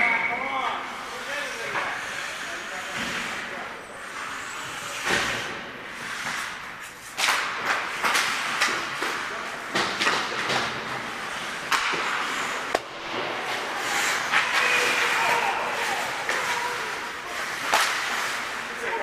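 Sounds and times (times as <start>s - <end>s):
skate blades scraping ice: 4.0s - 19.0s
hockey sticks and puck clacking: 5.0s - 19.0s.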